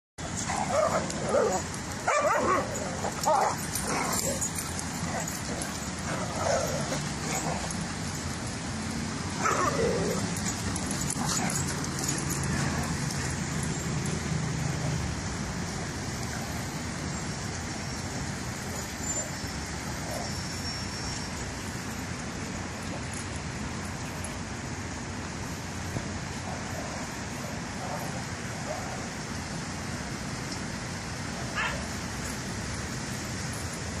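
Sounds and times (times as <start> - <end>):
steady background hiss: 0.2 - 34.0
dogs barking: 0.5 - 7.7, 31.5 - 31.9
dog barking: 2.1 - 2.6.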